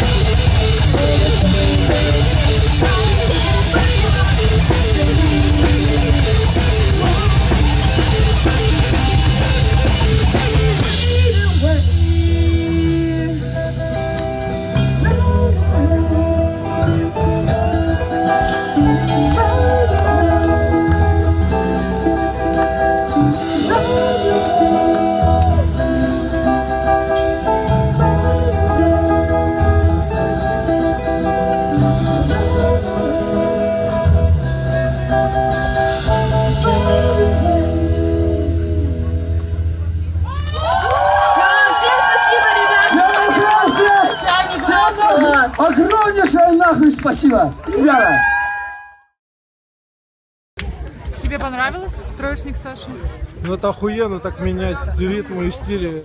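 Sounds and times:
driving drum kit: 0:00.0 - 0:39.0
electric guitars: 0:00.0 - 0:46.8
rock band playing: 0:00.0 - 0:47.0
bass guitar: 0:00.0 - 0:49.1, 0:50.6 - 0:56.0
woman singing: 0:00.9 - 0:08.0, 0:15.0 - 0:21.3, 0:23.6 - 0:25.6, 0:31.9 - 0:33.8.

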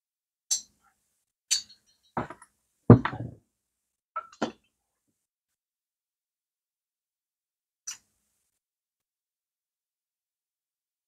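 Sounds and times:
heavy metal knock: 0:02.2 - 0:03.4.

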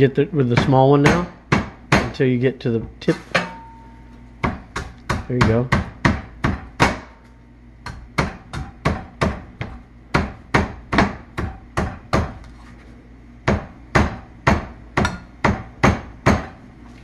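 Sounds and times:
cleaver chopping coconut: 0:04.4 - 0:07.2, 0:07.9 - 0:12.4.

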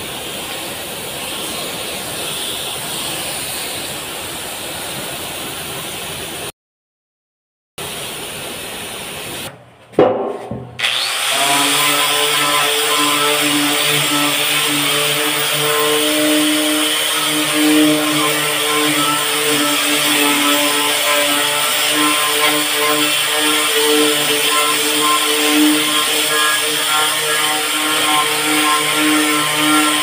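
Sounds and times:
pressure washer spray hiss: 0:00.0 - 0:05.4
wire brush grinder on steel: 0:10.8 - 0:30.0.

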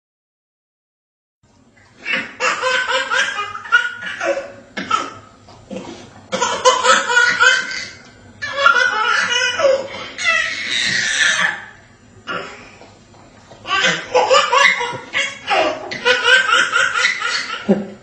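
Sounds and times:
hearty laughter: 0:16.0 - 0:18.0.

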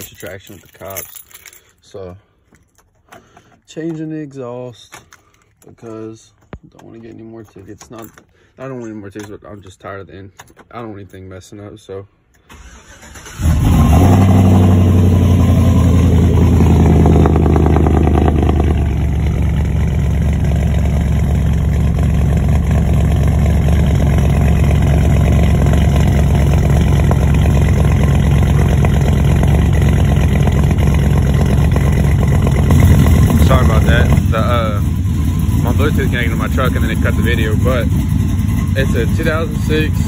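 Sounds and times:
engine starting up: 0:12.5 - 0:14.8
loud exhaust engine idling: 0:14.0 - 0:40.0.

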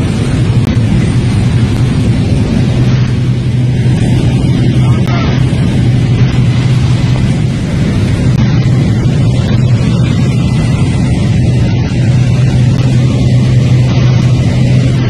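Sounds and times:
aircraft engine drone in cabin: 0:00.0 - 0:15.0.

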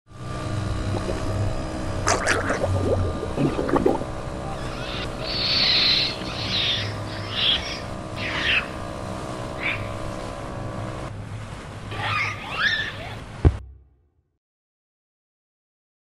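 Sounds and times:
boat engine hum: 0:00.1 - 0:14.0
water splashing: 0:02.0 - 0:04.2
monkey shrill cries: 0:04.5 - 0:08.8, 0:09.6 - 0:09.9, 0:11.9 - 0:13.2.

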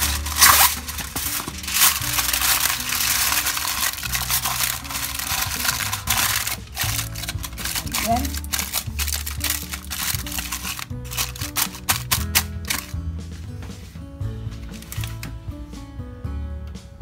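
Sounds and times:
aluminium foil crinkling: 0:00.0 - 0:12.9, 0:14.8 - 0:15.2
background music: 0:00.0 - 0:17.0.

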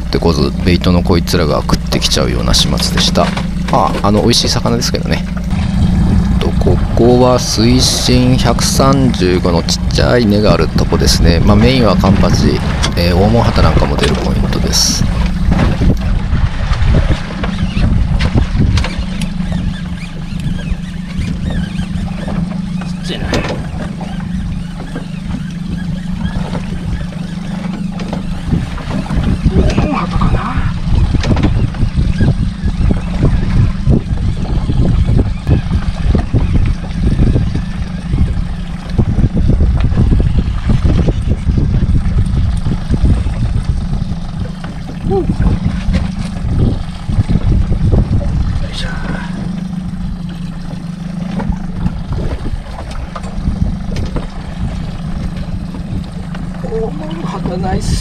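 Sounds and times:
water slapping against boat hull: 0:00.0 - 0:58.0
wind rumbling on microphone: 0:00.0 - 0:58.0.

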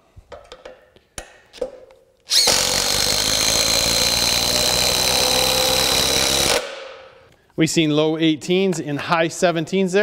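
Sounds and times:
impact driver hammering screw: 0:02.3 - 0:06.8.

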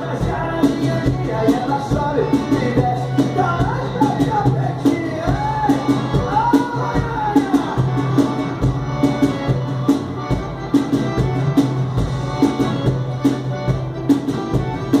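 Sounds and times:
person singing: 0:00.0 - 0:08.3
bass line: 0:00.0 - 0:15.0.

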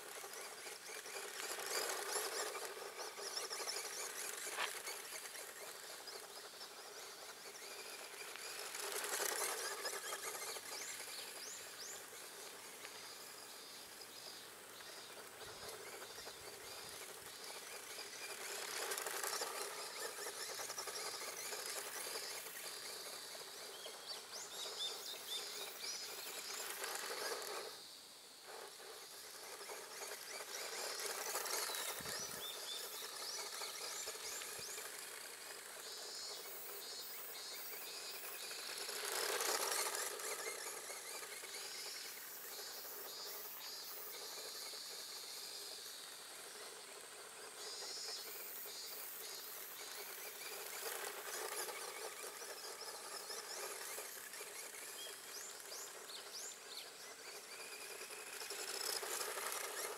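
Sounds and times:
birds chirping: 0:00.0 - 0:46.8
toy car motor and tyres on gravel: 0:00.0 - 0:59.9.

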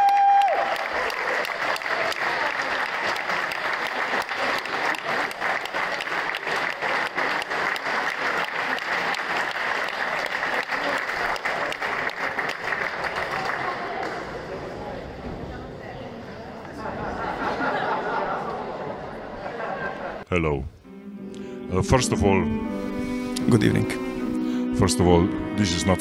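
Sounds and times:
audience applauding: 0:00.0 - 0:14.8.

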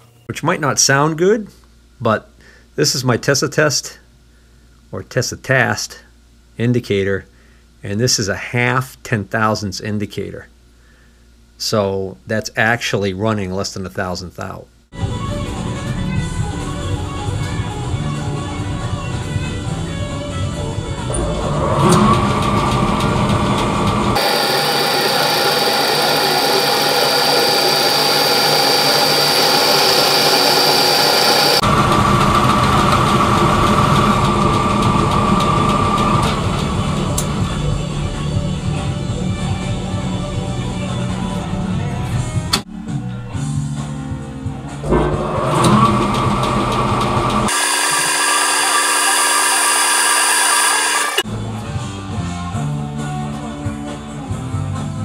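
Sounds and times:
high steady whine: 0:20.8 - 0:40.4, 0:44.9 - 0:51.2
metal lathe running: 0:21.1 - 0:37.7, 0:44.9 - 0:51.2.

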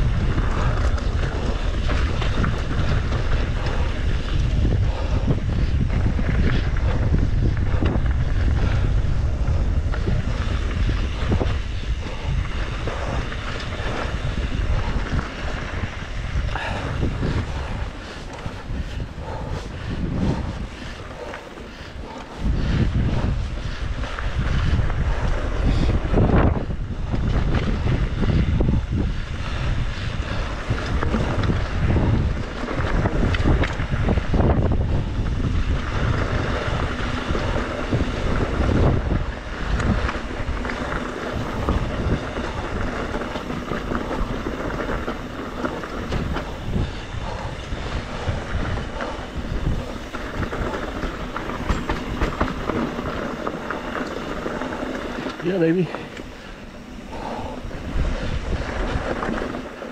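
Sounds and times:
bike knocks and rattles: 0:00.0 - 0:59.9
continuous rumble of bike: 0:00.0 - 0:59.9
wind buffeting microphone: 0:00.0 - 0:59.9.

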